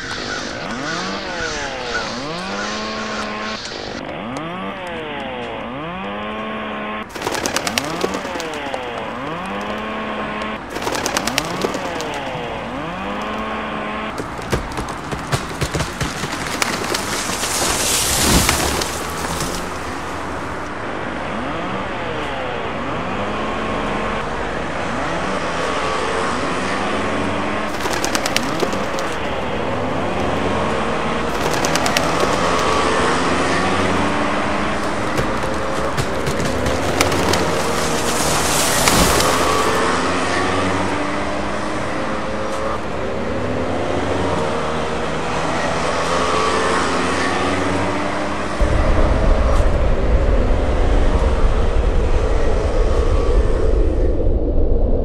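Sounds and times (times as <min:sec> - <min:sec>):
swooping layered tones: 0:00.0 - 0:05.4
rapid crackling clicks: 0:07.1 - 0:13.5, 0:14.2 - 0:20.3, 0:27.7 - 0:30.6, 0:31.3 - 0:39.8
rushing noise: 0:27.7 - 0:41.3, 0:48.6 - 0:55.0.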